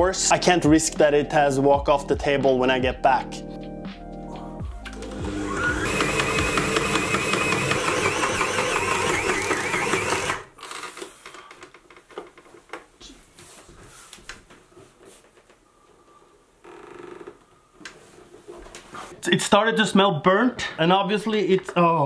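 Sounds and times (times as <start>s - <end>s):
stand mixer motor rattling: 5.1s - 10.5s.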